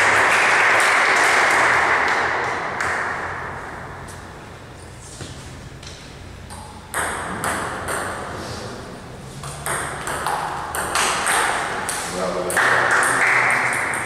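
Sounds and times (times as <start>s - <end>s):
ping pong ball on paddle and table: 5.2s - 14.0s.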